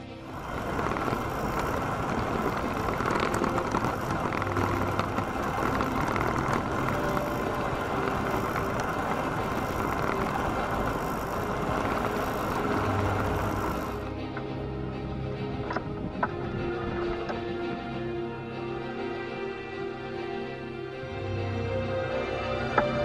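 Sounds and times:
tyres rolling on gravel: 0.0 - 14.1
wind on microphone: 0.0 - 18.3
small clicks: 0.3 - 14.5.

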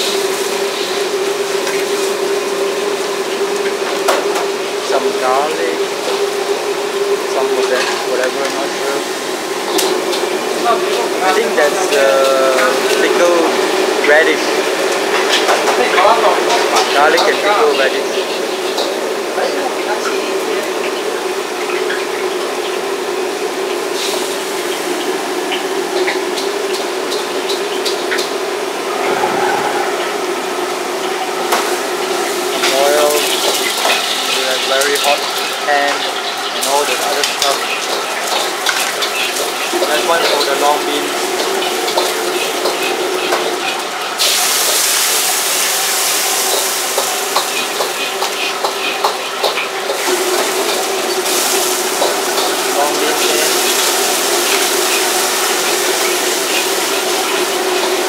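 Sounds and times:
fish frying in oil: 0.0 - 29.3, 30.6 - 58.0
wok burners roaring: 0.0 - 58.0
burner hum: 28.5 - 34.4.

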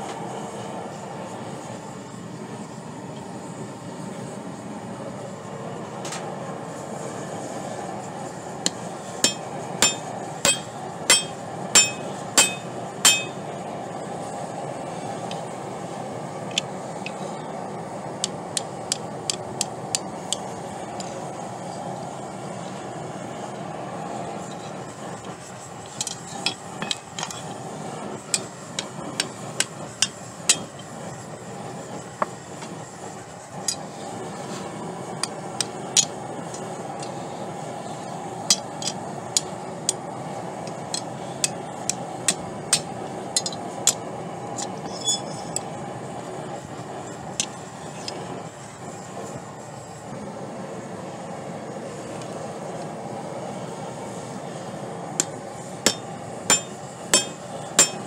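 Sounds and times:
gas forge burner roar: 0.0 - 58.0
hammer ringing on anvil: 9.2 - 13.4, 30.0 - 30.8, 55.9 - 58.0.

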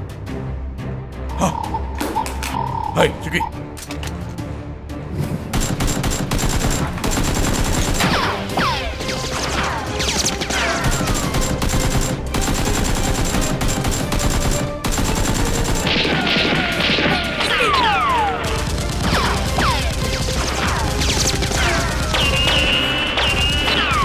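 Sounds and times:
background music: 0.0 - 24.0
rapid automatic gunfire: 5.5 - 8.4, 9.3 - 24.0
bullets whistling and ricocheting: 15.9 - 18.4, 19.1 - 24.0.

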